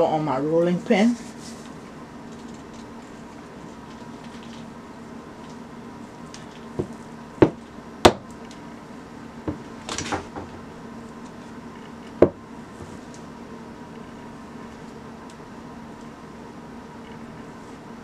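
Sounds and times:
rolling pin knocking on stone: 6.8 - 8.2, 9.5 - 10.6, 12.2 - 12.4.

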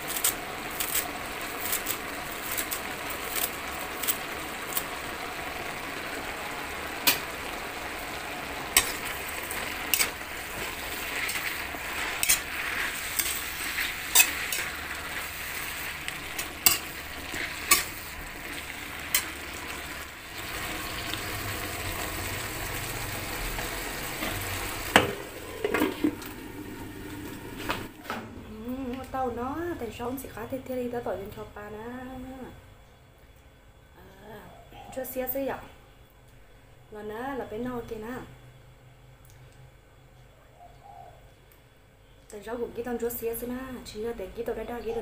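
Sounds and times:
greens sizzling in a wok: 0.0 - 32.4
spatula scraping a metal wok: 8.8 - 20.1
lid knocking on a wok: 24.9 - 26.2.

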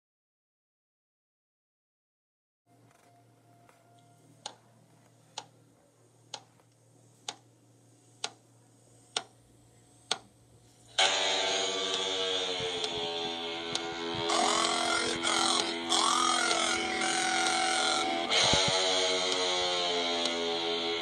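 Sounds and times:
faint hum: 2.7 - 21.0
sharp ticks: 9.1 - 9.3, 13.7 - 20.5
loud sustained pitched tone: 11.0 - 20.1.

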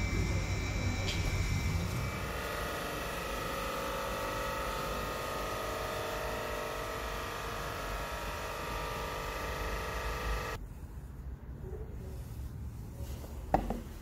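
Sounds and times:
compressor machine hum: 0.0 - 10.6
steady whining tones: 0.0 - 10.6.

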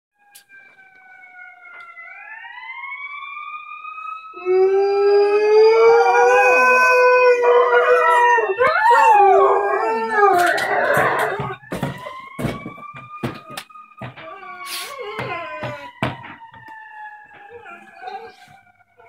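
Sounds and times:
emergency siren wailing: 0.2 - 19.0
dog howling: 4.4 - 11.6, 13.2 - 16.4, 17.3 - 19.0.

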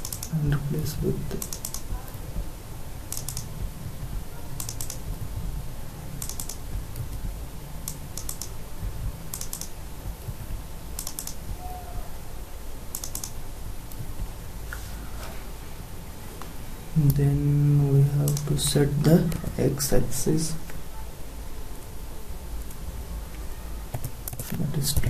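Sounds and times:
keyboard and mouse clicks: 0.0 - 0.4, 1.3 - 1.9, 3.1 - 3.5, 4.6 - 5.1, 6.2 - 7.2, 7.8 - 8.6, 9.3 - 9.7, 11.0 - 11.4, 12.9 - 14.1, 18.2 - 18.6, 23.9 - 24.6
low hum: 0.0 - 23.8.

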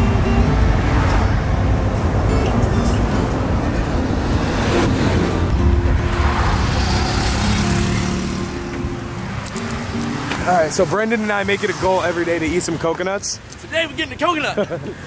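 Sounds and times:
background music: 0.0 - 11.7
engine and road rumble: 0.0 - 15.0.

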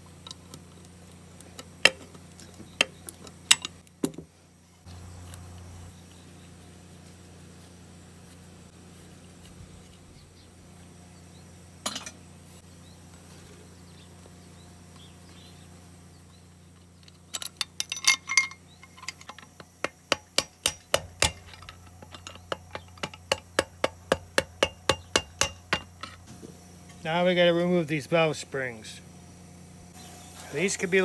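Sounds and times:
metallic clink: 17.1 - 19.6.

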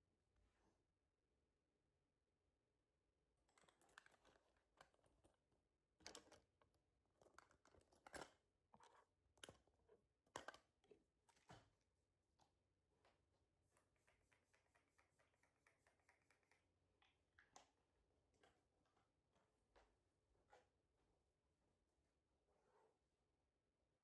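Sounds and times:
faint clicks taps and rustles: 3.5 - 20.8.

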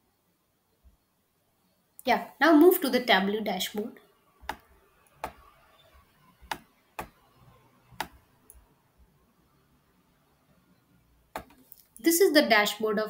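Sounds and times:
computer mouse clicking: 4.4 - 5.4, 6.4 - 7.2, 8.0 - 8.6, 11.4 - 11.9.

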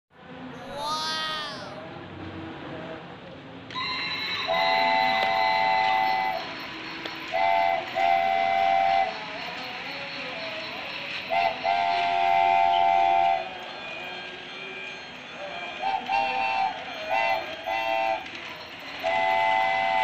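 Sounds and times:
toy train rattling on plastic track: 3.7 - 11.5, 13.6 - 20.0
toy train electronic whistle: 3.7 - 20.0.

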